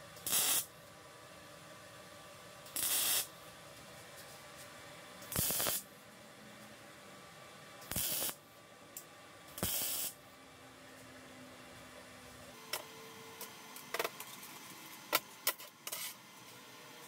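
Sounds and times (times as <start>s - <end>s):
compressed air blow gun hissing: 2.8s - 3.3s, 5.3s - 5.8s.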